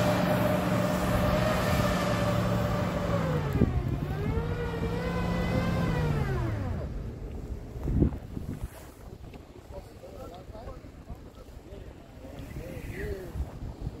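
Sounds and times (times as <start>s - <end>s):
truck engine revving hard: 0.0s - 7.0s
wheels spinning in snow: 0.0s - 9.0s.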